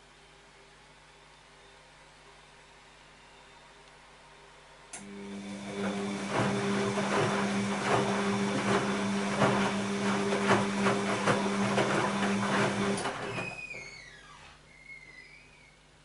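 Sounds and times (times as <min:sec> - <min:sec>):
washing machine motor hum: 0:04.9 - 0:14.4.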